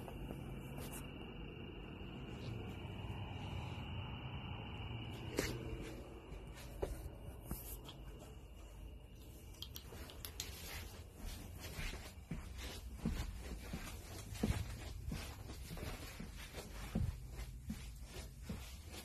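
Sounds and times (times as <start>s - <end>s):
sharp clicks: 9.4s - 10.6s.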